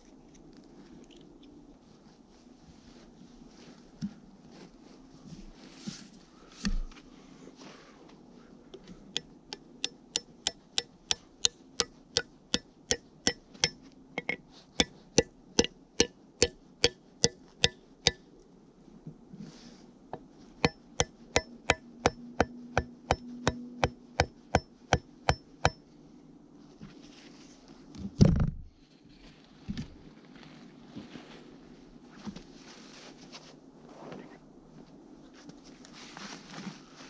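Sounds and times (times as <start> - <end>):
axe heads tapping together: 9.2 - 15.0.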